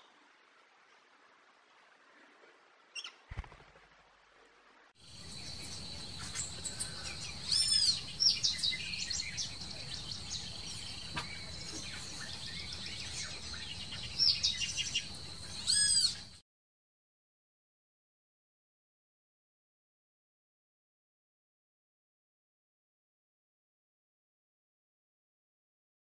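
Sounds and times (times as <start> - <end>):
birds chirping and whistling: 5.1 - 16.4
loud arching bird calls: 5.1 - 16.4.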